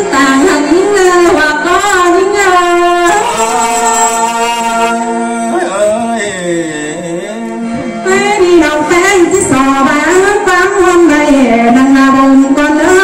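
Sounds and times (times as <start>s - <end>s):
woman singing into a microphone: 0.0s - 5.1s, 7.8s - 13.0s.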